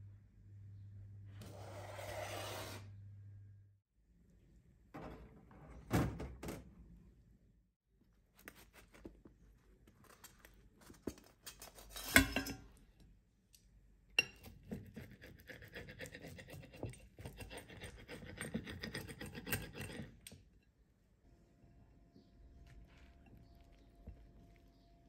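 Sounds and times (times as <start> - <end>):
pizza cutter scraping plate: 1.4 - 2.9, 14.7 - 20.2.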